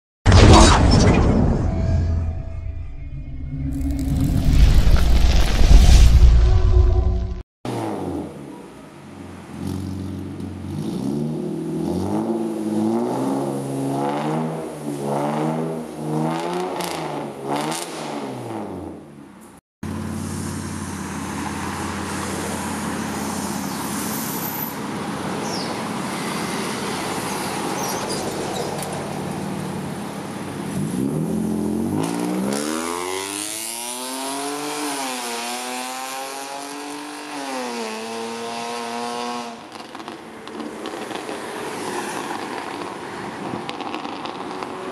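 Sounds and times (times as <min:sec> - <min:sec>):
passing traffic: 0:07.0 - 0:44.9
loud car engine accelerating: 0:09.4 - 0:19.0, 0:30.6 - 0:44.9.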